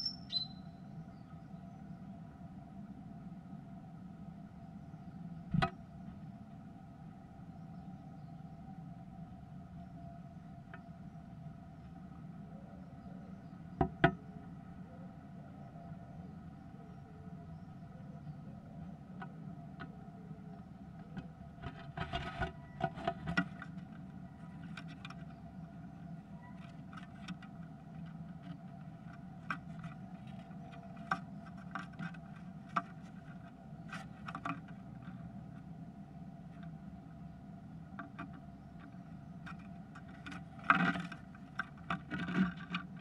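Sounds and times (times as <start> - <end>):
bird feet tapping and scratching wood: 21.0 - 35.7, 37.9 - 43.0.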